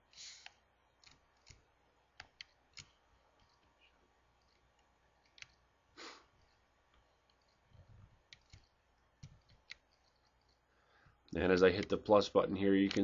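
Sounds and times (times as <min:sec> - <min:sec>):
computer mouse clicks: 0:00.1 - 0:03.7, 0:04.4 - 0:05.6, 0:06.3 - 0:10.6, 0:11.7 - 0:12.0.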